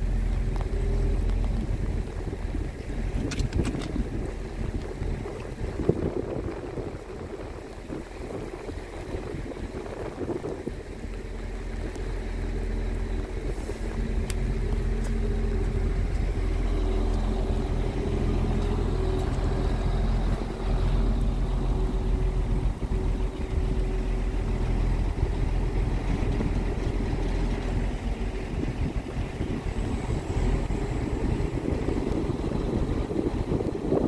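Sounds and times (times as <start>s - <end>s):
truck diesel engine running: 0.0s - 34.0s.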